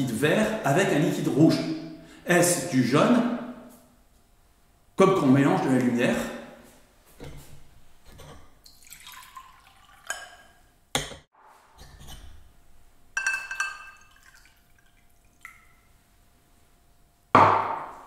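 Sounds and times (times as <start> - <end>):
liquid pouring into glass: 8.6 - 10.6, 13.2 - 15.9
drinking glasses clinking: 13.2 - 14.4.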